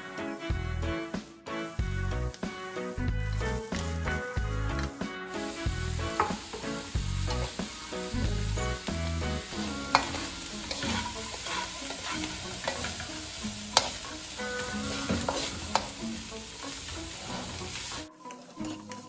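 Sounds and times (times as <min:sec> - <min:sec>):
vegetables sizzling in oil: 0:01.7 - 0:19.0
spatula knocking metal pan: 0:06.1 - 0:07.9, 0:09.4 - 0:13.1, 0:13.7 - 0:14.3.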